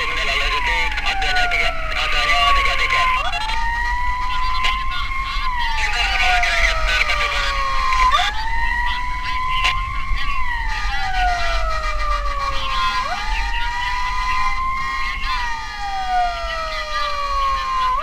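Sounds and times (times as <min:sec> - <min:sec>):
emergency siren wailing: 0:00.0 - 0:18.0.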